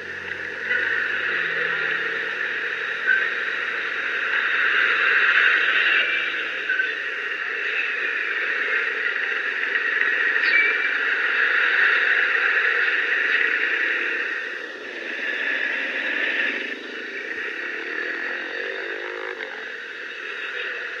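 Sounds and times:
scooter engine: 0:00.0 - 0:04.2
vehicle accelerating: 0:00.0 - 0:05.0, 0:14.9 - 0:19.8
road traffic: 0:00.0 - 0:21.0.

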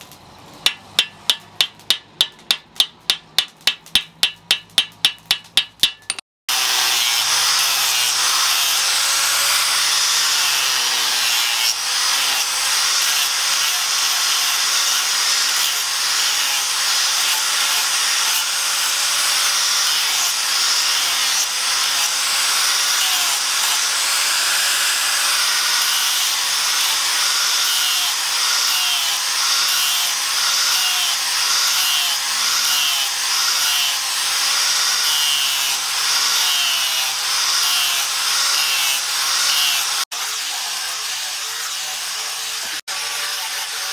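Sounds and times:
hammer strike: 0:00.7 - 0:06.2
angle grinder sanding wood: 0:06.5 - 0:43.9.

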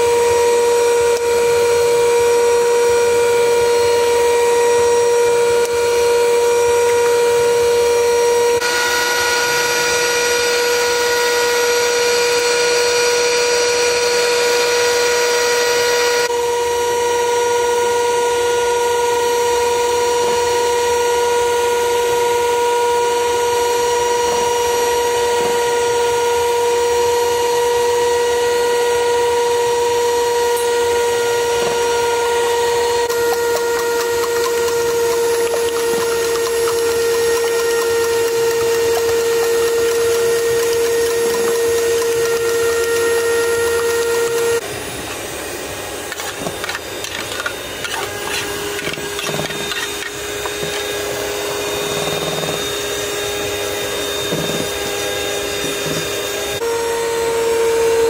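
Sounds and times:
electric hand mixer whirring: 0:00.0 - 0:58.0
steady droning tone: 0:30.3 - 0:44.6.

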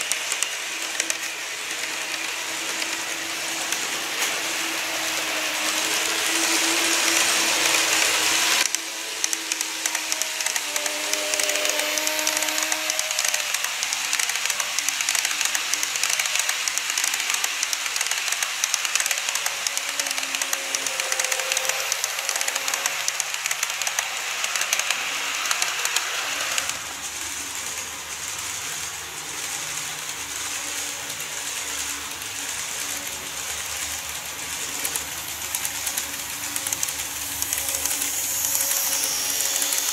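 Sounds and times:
faint motor hum: 0:00.0 - 0:14.9
model train wheels clicking on rails: 0:00.0 - 0:39.9.

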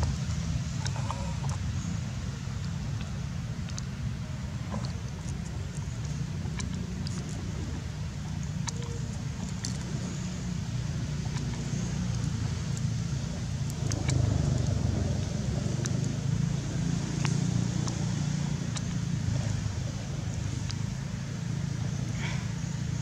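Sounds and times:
low background rumble: 0:00.0 - 0:23.0
faint sharp clicks: 0:02.6 - 0:03.9.

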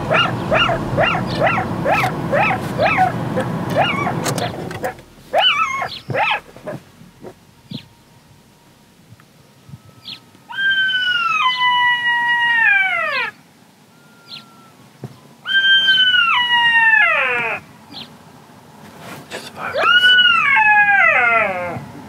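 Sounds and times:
jackal howling: 0:00.0 - 0:06.8, 0:10.5 - 0:13.4, 0:15.4 - 0:18.1, 0:19.6 - 0:22.0.

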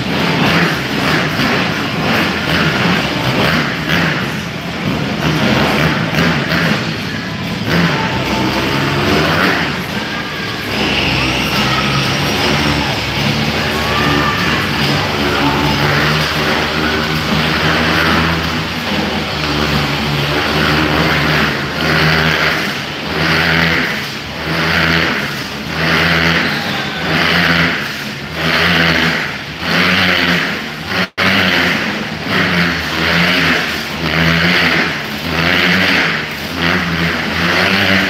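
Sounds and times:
motorcycle engines revving: 0:00.0 - 0:38.0.

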